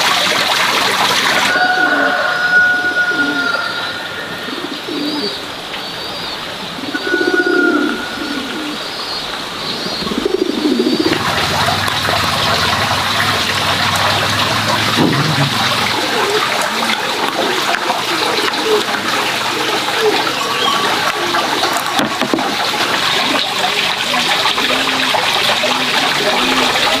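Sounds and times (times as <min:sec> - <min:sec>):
steady hissing noise: 0:00.0 - 0:27.0
pigeons cooing: 0:01.2 - 0:27.0
high bird chirps: 0:01.5 - 0:11.2.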